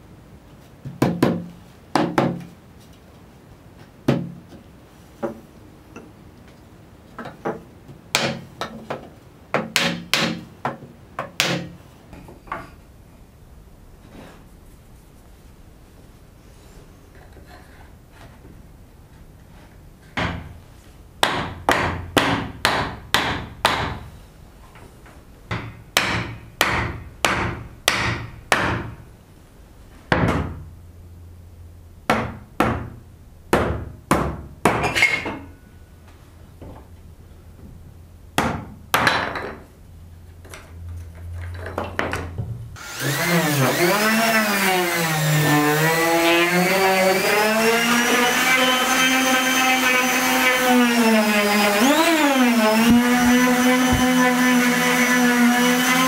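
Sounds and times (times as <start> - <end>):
power tool motor running: 42.8 - 45.3, 45.9 - 56.0.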